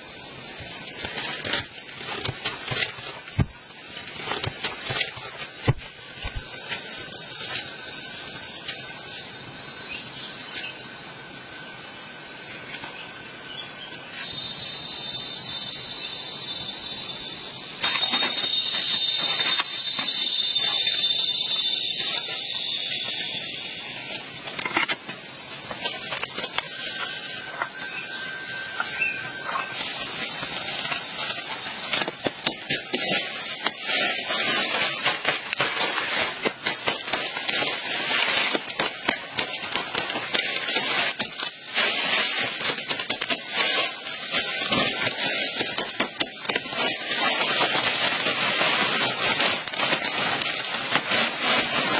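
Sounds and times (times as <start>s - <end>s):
high-pitched drone: 0.0s - 51.9s
leaves and sticks rustling: 0.0s - 51.9s
stems cracking and clicking: 0.2s - 9.2s, 17.8s - 51.9s
falling whistles: 14.1s - 51.9s.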